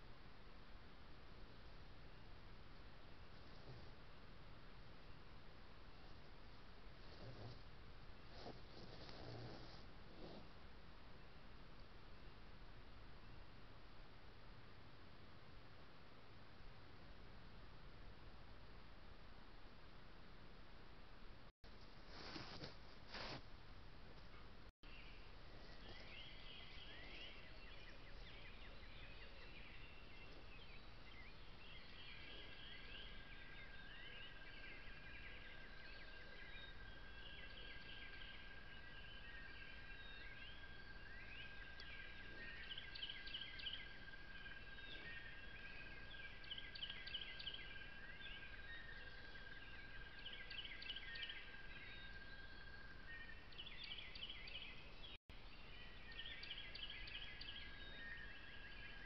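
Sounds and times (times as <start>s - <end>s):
songbirds chirping and trilling: 24.3s - 59.0s.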